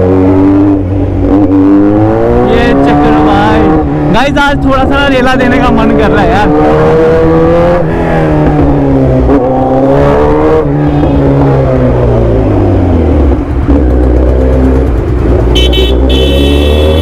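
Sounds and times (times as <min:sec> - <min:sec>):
motorcycle engine revving: 0:00.0 - 0:17.0.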